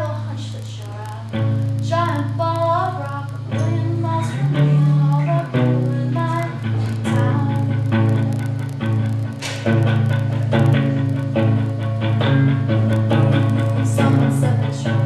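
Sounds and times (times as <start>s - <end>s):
woman singing: 0.0s - 9.2s, 13.1s - 15.0s
electric guitar through amplifier: 0.0s - 15.0s.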